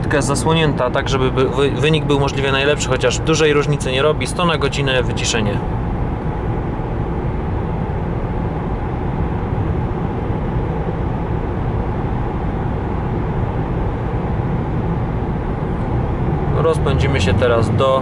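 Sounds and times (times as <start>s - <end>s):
car cabin road and wind noise: 0.0s - 18.0s.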